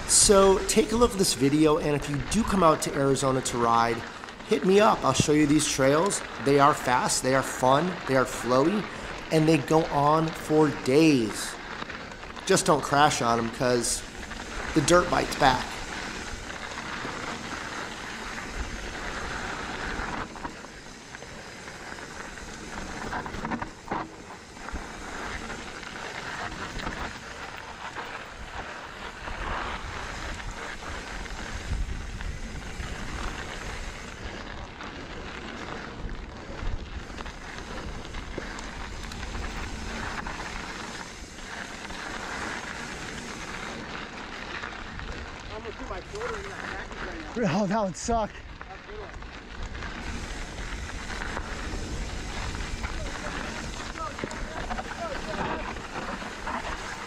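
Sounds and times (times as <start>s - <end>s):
bike knocking and rattling: 0.0s - 57.0s
bike tyres rolling on rocky dirt: 0.0s - 57.0s
wind buffeting microphone: 28.3s - 44.0s, 48.4s - 57.0s.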